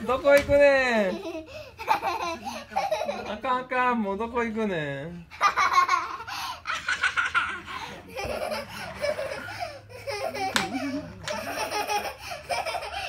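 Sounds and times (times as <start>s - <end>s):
child giggling: 1.0s - 3.4s, 5.4s - 13.0s.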